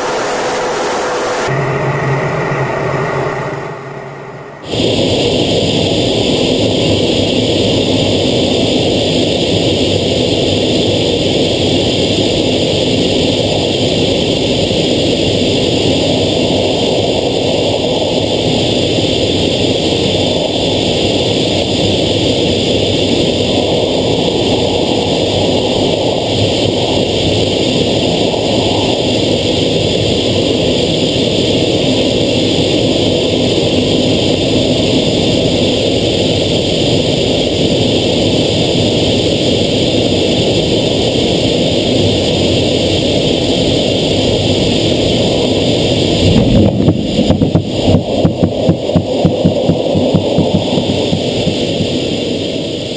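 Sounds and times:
jet engine and rushing air: 0:00.0 - 0:52.9.

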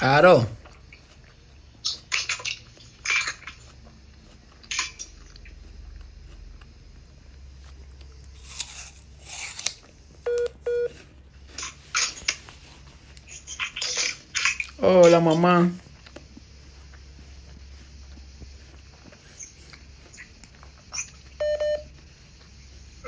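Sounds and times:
crunching and rustling: 0:00.2 - 0:23.0
short electronic beeps: 0:10.3 - 0:10.9, 0:21.4 - 0:21.9.

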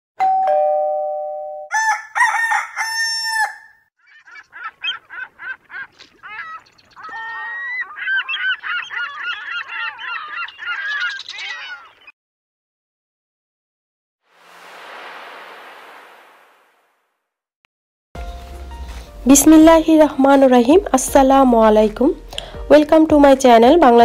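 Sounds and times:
rooster crowing: 0:01.7 - 0:03.8
birds chirping: 0:04.0 - 0:12.2.

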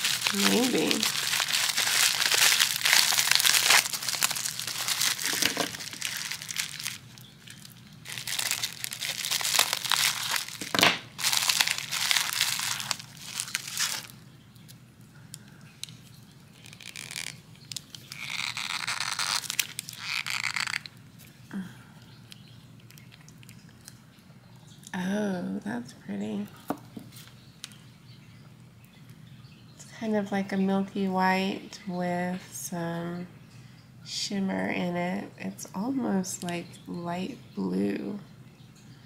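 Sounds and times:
bubble wrap crinkling: 0:00.0 - 0:14.7, 0:15.7 - 0:21.4.

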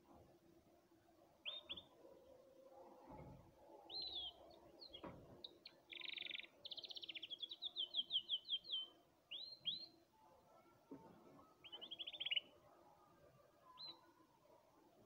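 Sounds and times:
canary singing: 0:05.4 - 0:10.0, 0:11.6 - 0:12.6.

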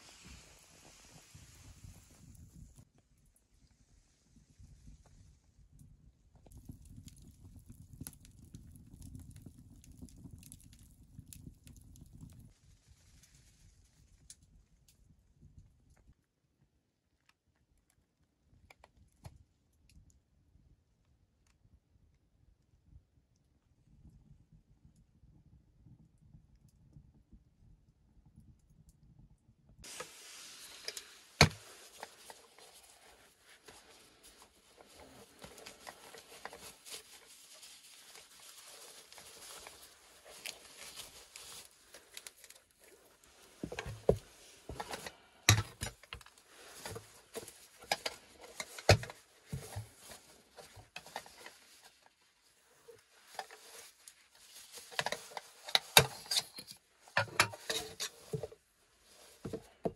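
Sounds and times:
stuff sack rustling: 0:29.8 - 0:59.6.

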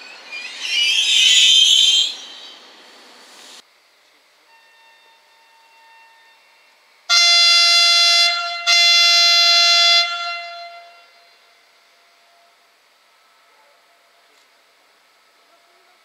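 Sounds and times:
faint horn tone: 0:04.4 - 0:12.6
locomotive horn blasts: 0:04.5 - 0:11.5.

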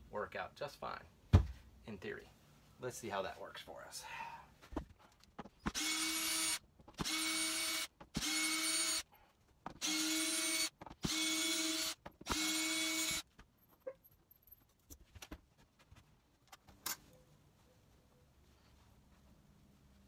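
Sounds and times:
cordless drill whining: 0:05.7 - 0:09.0, 0:09.8 - 0:13.2.

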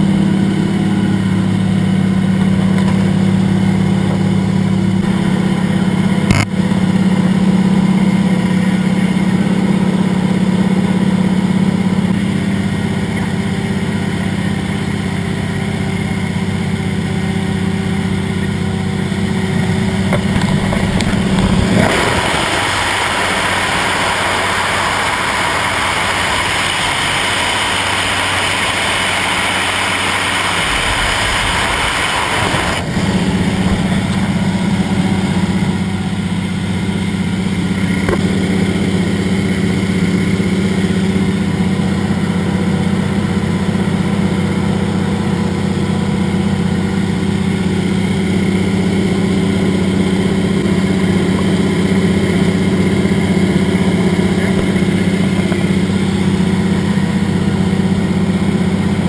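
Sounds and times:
propeller plane engine droning: 0:00.0 - 0:59.0
rushing wind hiss: 0:20.4 - 0:35.4.

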